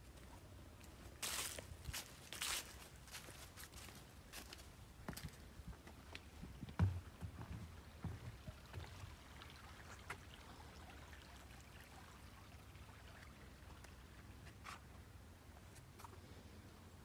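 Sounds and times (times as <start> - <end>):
footsteps on wooden bridge: 0.1 - 9.0
creek trickling: 6.0 - 16.0.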